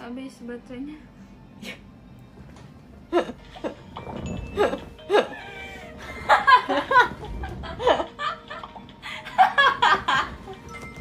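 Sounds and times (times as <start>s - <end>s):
young women laughing: 4.6s - 10.6s.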